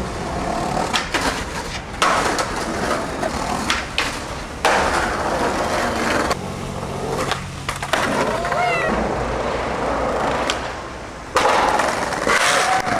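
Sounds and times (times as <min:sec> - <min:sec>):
skateboard wheels rolling on paving: 0:00.0 - 0:12.9
skateboard clacks popping and landing: 0:00.8 - 0:06.3, 0:07.2 - 0:09.1, 0:10.1 - 0:12.9.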